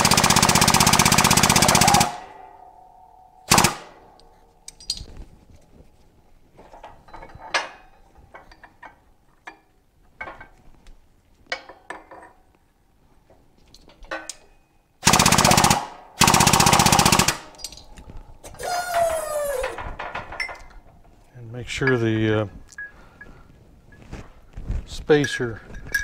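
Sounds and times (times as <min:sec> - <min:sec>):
loud rapid rattling: 0:00.0 - 0:02.4, 0:03.5 - 0:03.9
light metal clinks: 0:04.1 - 0:05.3, 0:06.6 - 0:10.6, 0:20.2 - 0:26.0
falling squeal: 0:18.6 - 0:19.8.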